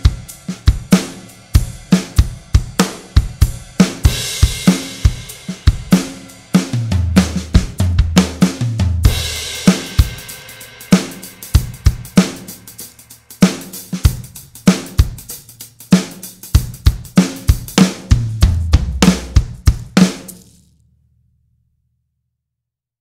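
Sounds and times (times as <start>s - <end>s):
drum kit beat: 0.0s - 20.7s
cymbal crash: 1.0s - 6.6s, 9.1s - 13.8s
low bass notes: 18.2s - 19.3s.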